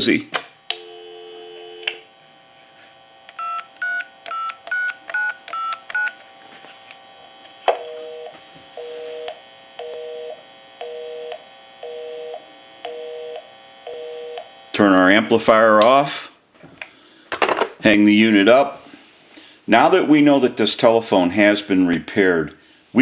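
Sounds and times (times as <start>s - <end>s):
dial tone: 0.7s - 2.0s, 7.8s - 14.5s.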